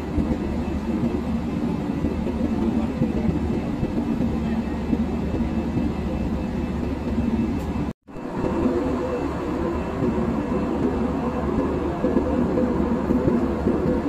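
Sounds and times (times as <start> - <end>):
airliner cabin engine rumble: 0.0 - 14.0.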